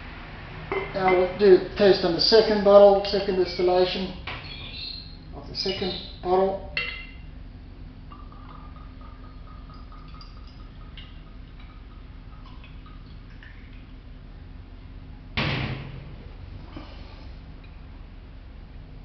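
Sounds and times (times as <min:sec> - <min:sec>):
glass clinking: 0:00.7 - 0:01.3, 0:06.8 - 0:07.3
liquid trickling into glass: 0:08.1 - 0:14.0.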